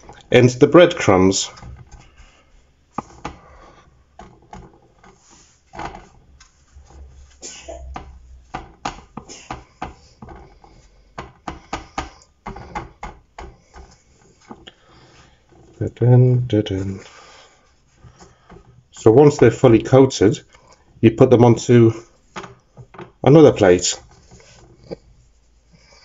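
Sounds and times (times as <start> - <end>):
breadcrumbs rustling: 0.0 - 9.2
fingers tapping on paper plate: 7.9 - 14.7.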